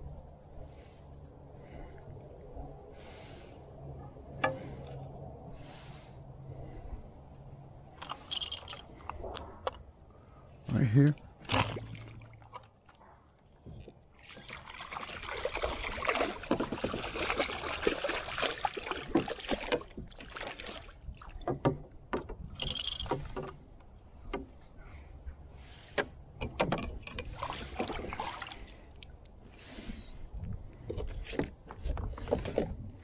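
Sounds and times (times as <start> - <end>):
fish splashing in water: 14.2 - 21.3.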